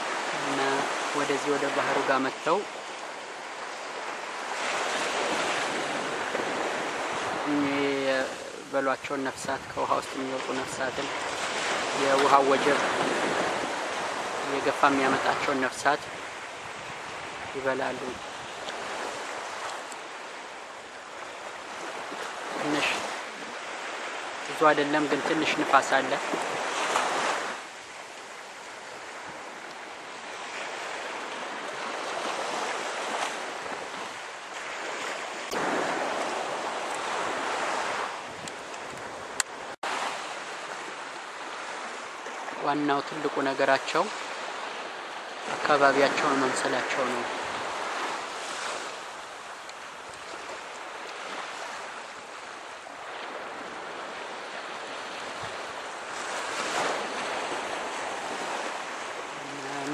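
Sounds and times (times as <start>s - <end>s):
wind gusting over microphone: 0.0s - 43.2s, 44.1s - 59.9s
surf washing on beach: 0.0s - 59.9s
wind buffeting microphone: 8.2s - 20.3s, 28.8s - 42.5s.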